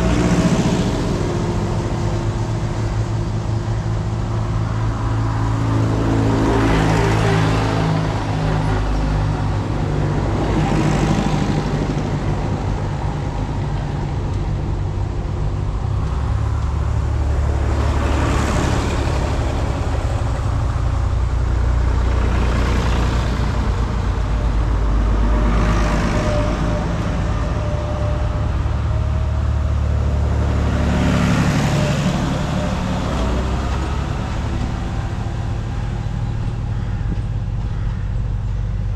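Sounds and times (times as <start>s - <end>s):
tractors driving past: 0.0s - 38.9s.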